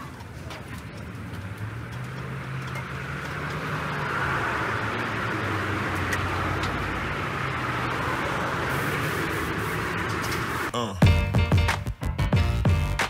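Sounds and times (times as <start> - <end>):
vehicle engine running: 0.0 - 10.7
street traffic: 0.0 - 13.0.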